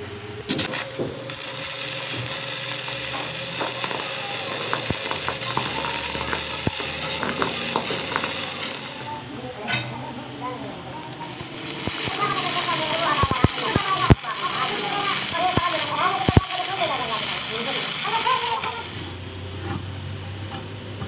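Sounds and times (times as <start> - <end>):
welding arc crackling sizzle: 0.4 - 9.5, 10.9 - 19.3
welding rod striking clicks: 0.5 - 9.2, 11.0 - 19.2.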